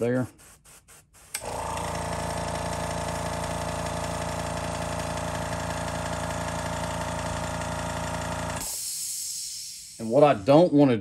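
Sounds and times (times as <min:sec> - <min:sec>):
air compressor humming: 0:00.0 - 0:10.7.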